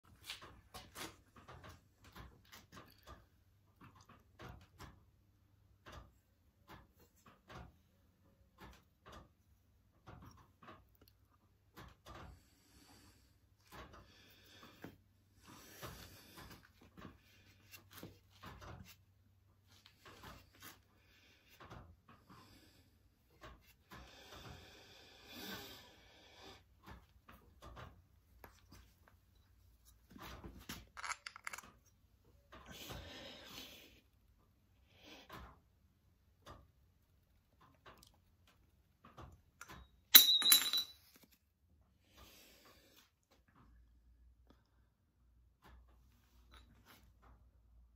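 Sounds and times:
metal block clattering down: 31.0s - 31.7s.

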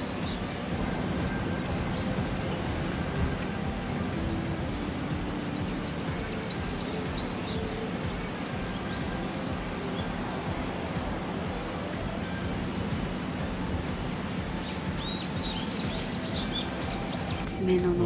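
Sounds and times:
outdoor background hiss: 0.0s - 18.0s
faint bird chirps: 14.6s - 17.7s.

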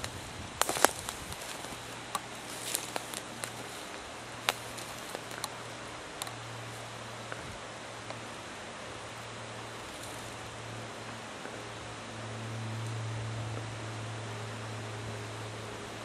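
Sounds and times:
footsteps on dry leaves and twigs: 0.0s - 7.6s, 9.7s - 10.5s
steady hiss and low hum: 0.0s - 16.0s.

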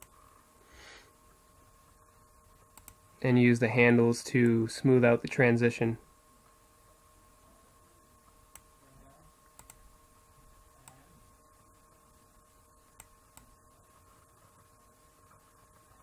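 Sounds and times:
computer mouse clicks: 0.0s - 0.2s, 2.7s - 3.0s, 9.6s - 9.8s, 13.0s - 13.6s
quiet steady hum: 0.0s - 16.0s.

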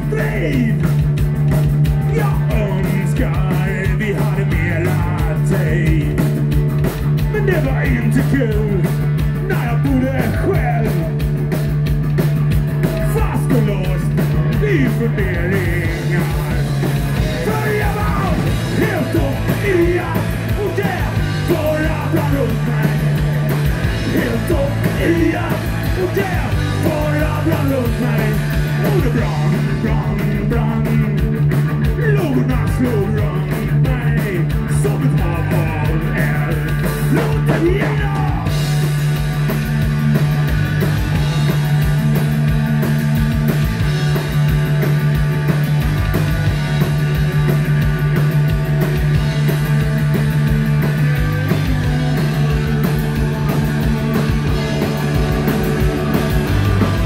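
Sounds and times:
man singing lead: 0.0s - 1.2s, 1.8s - 6.5s, 7.2s - 11.4s, 12.8s - 39.0s
punk rock band playing: 0.0s - 57.0s.

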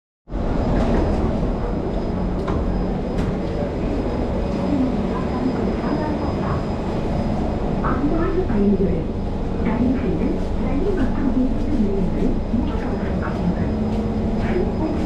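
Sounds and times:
train humming and rumbling: 0.3s - 15.0s
faint passenger voices: 0.8s - 15.0s.

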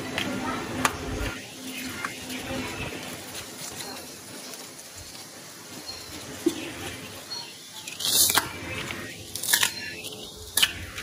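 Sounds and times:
rustle of stalks and leaves: 0.0s - 11.0s.

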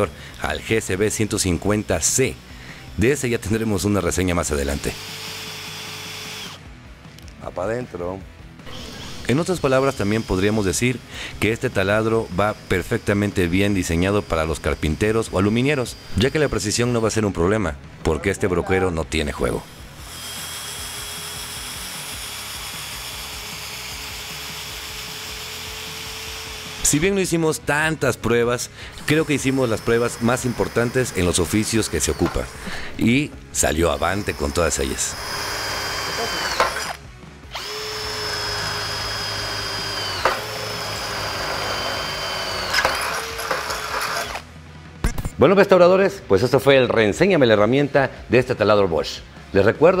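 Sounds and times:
cordless drill motor whine: 0.0s - 6.7s, 8.7s - 17.0s, 19.6s - 26.9s, 28.9s - 32.6s, 33.7s - 44.5s.

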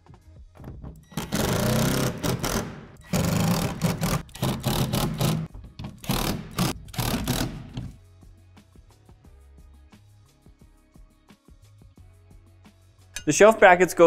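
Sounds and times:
cordless drill whirring: 1.2s - 5.4s.

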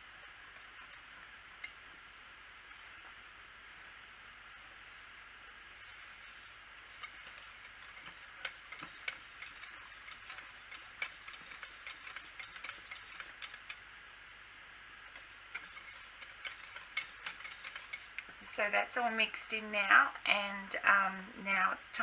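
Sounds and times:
faint steady hiss: 0.0s - 22.0s
whisk clicking against crock: 5.9s - 13.8s, 15.1s - 18.4s.

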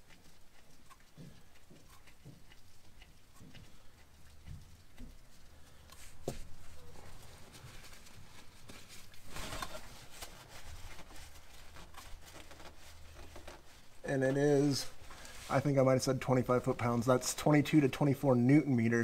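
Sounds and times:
rubbing rustle: 4.3s - 17.0s.

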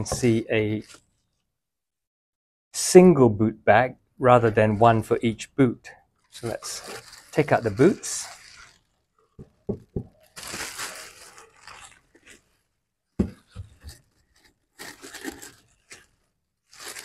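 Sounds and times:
plastic wrapping crinkling: 6.3s - 12.6s, 13.3s - 17.0s.

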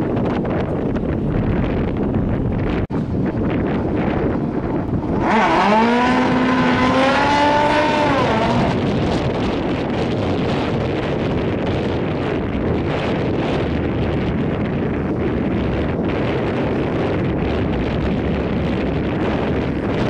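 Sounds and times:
steady rushing noise: 0.0s - 20.0s
motorcycle engine revving: 3.5s - 14.2s.

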